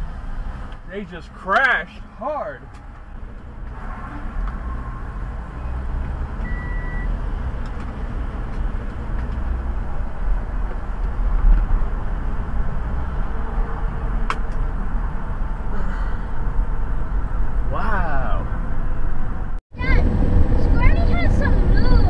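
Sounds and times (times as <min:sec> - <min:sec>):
car engine and road noise: 0:00.0 - 0:22.0
high beep: 0:06.4 - 0:07.1.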